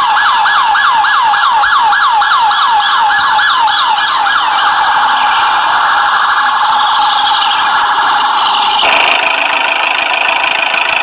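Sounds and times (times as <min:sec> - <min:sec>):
toy electronic siren: 0:00.0 - 0:11.0
steady hum: 0:04.7 - 0:11.0.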